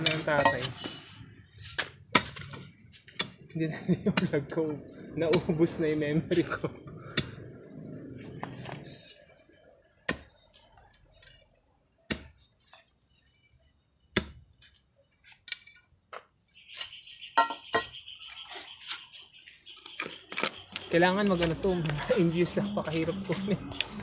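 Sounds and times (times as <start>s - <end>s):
metal tool striking ground and stones: 0.0s - 1.0s, 1.6s - 4.7s, 12.1s - 18.0s.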